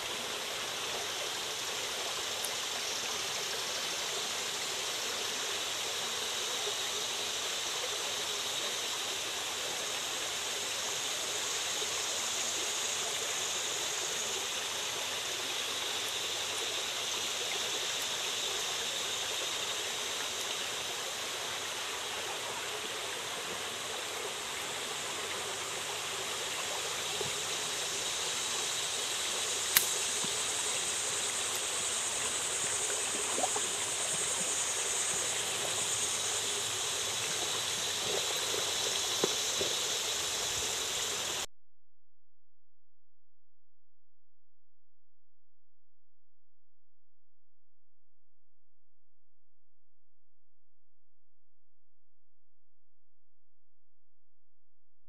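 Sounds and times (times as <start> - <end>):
creek water running over rocks: 0.0 - 41.4
sharp click: 29.7 - 30.0.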